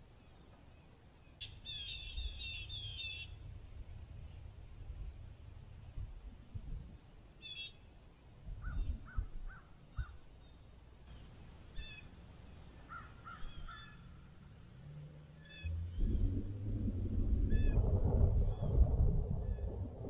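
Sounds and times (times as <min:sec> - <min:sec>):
faint low rumble: 0:02.2 - 0:07.4, 0:14.3 - 0:20.0
steady low hum: 0:15.6 - 0:20.0.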